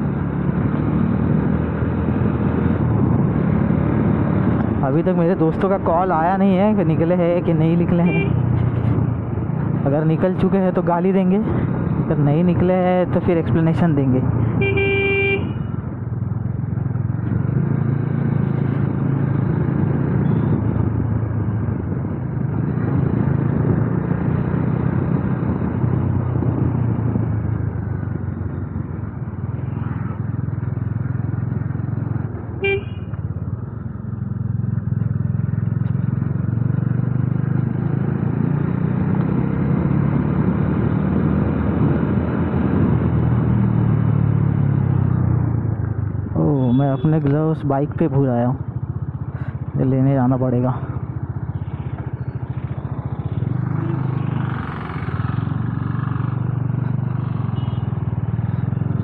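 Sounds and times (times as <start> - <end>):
motorcycle engine riding: 0.0 - 59.0
road noise: 0.0 - 59.0
vehicle horn toot: 8.0 - 8.4, 14.6 - 15.7, 32.6 - 33.2.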